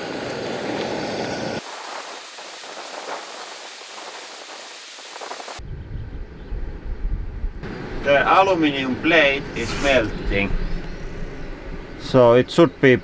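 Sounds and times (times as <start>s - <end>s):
gas burner hissing and crackling: 0.0s - 5.6s, 7.6s - 11.0s
low rumble: 5.6s - 12.2s.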